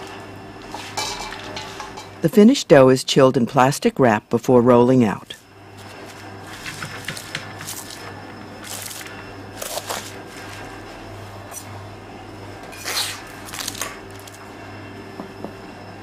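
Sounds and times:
steady low hum: 0.0s - 16.0s
plastic wrap crinkling: 7.1s - 10.7s, 13.0s - 14.4s.

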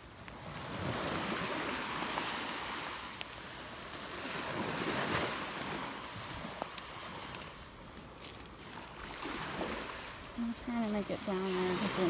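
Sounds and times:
surf washing over sand: 0.0s - 12.0s.

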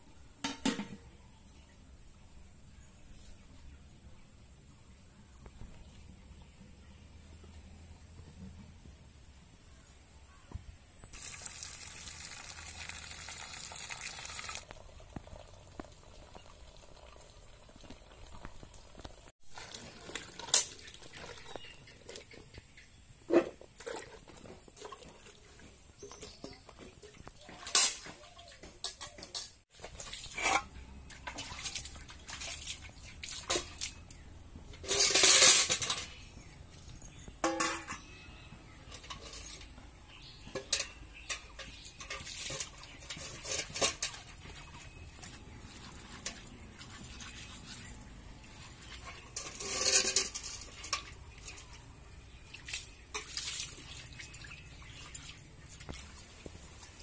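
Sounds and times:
water pouring from a pot: 11.1s - 21.9s, 29.7s - 34.1s, 40.4s - 57.0s
steel cookware clinking: 34.7s - 36.2s, 37.2s - 55.6s.

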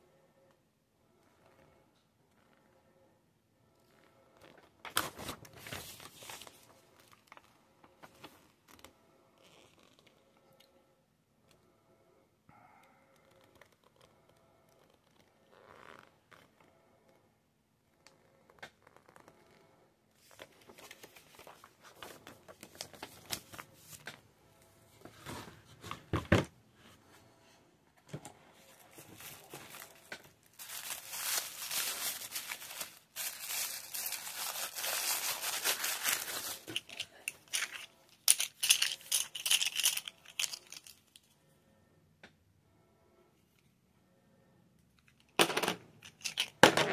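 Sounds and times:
paper crinkling and tearing: 28.8s - 37.1s.

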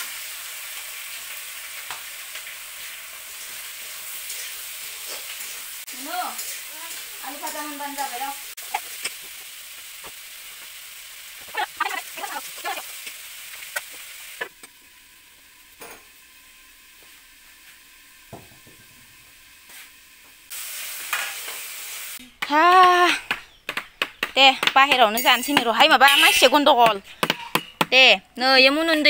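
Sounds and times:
food sizzling in hot oil: 0.0s - 23.6s, 24.5s - 29.0s
spatula stirring: 24.8s - 27.9s.

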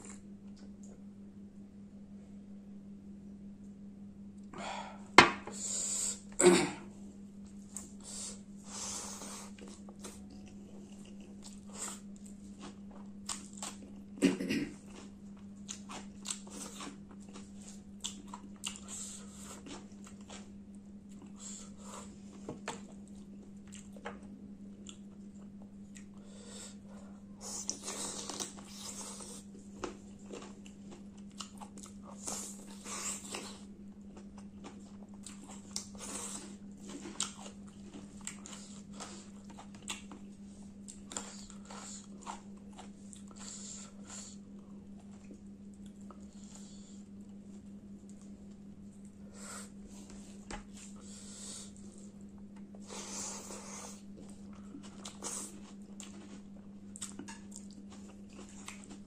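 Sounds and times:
steady low hum: 0.0s - 59.0s
wet chewing and smacking: 9.5s - 14.2s, 14.8s - 21.4s, 22.6s - 26.2s, 27.6s - 46.6s, 53.5s - 59.0s.

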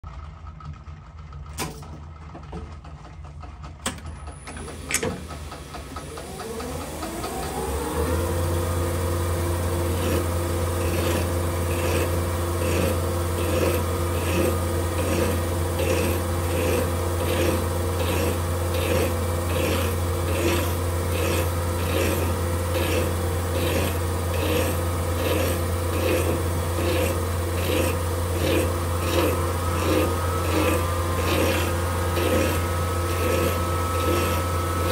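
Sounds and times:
lathe motor whining and humming: 4.0s - 34.9s
hand file scraping metal: 9.0s - 34.9s.

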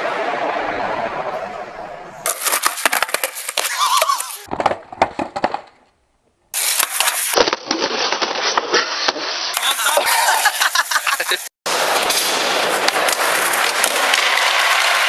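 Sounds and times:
skateboard clattering on hard ground: 2.3s - 5.9s, 6.6s - 9.7s, 11.8s - 15.0s.

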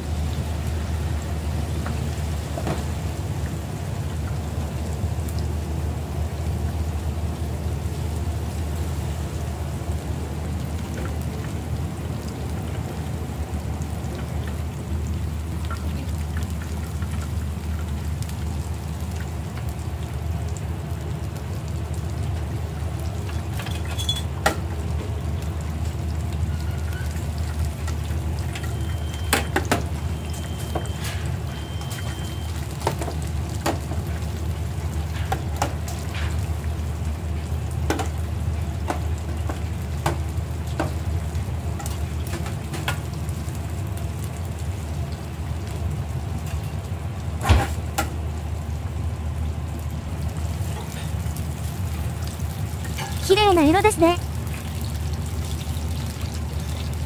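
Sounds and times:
oil sizzling and bubbling: 0.0s - 57.0s
metal tools clicking against fryer: 23.2s - 24.6s, 41.8s - 43.0s.

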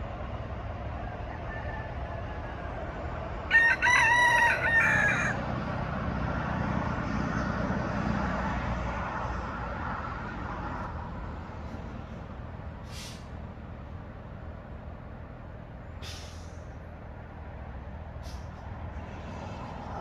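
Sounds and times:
rooster crowing: 1.0s - 5.5s.

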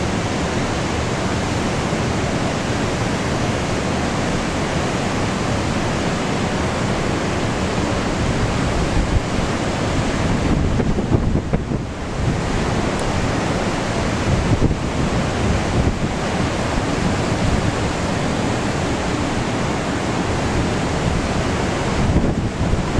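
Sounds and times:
heavy surf rushing: 0.0s - 22.9s
wind buffeting microphone: 6.9s - 22.9s.

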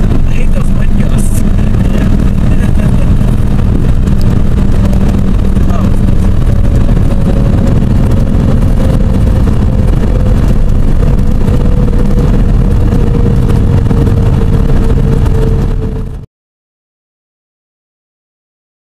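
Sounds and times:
propeller aircraft engine drone: 0.0s - 16.3s
steady whine: 0.0s - 16.3s.

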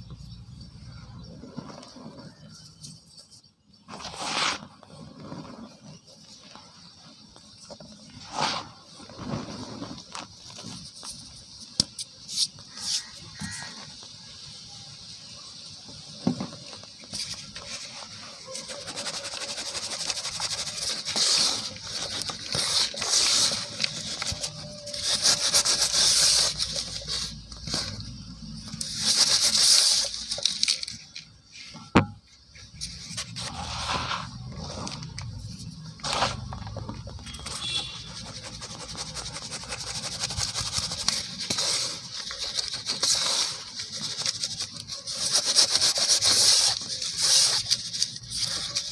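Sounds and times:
plastic bowl scraping through powder: 1.2s - 2.7s, 3.7s - 6.9s, 7.6s - 11.3s, 16.6s - 30.9s, 32.7s - 48.9s
cement powder pouring and hissing: 3.8s - 31.0s, 32.7s - 48.9s.

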